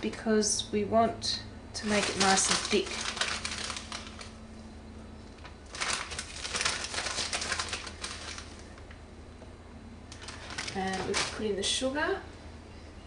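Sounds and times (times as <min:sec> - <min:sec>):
dry powder rustling into saucepan: 0:01.8 - 0:04.4, 0:05.7 - 0:08.7.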